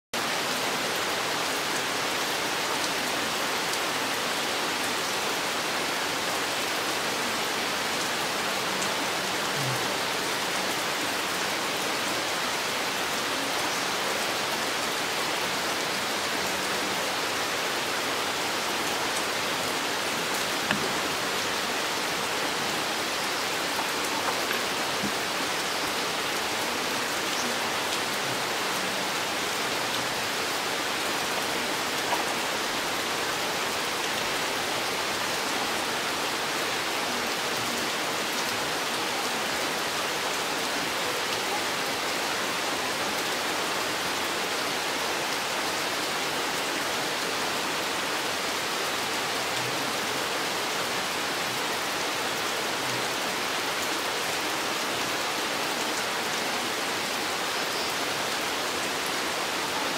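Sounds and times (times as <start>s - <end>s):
steady rain hiss: 0.2s - 59.9s.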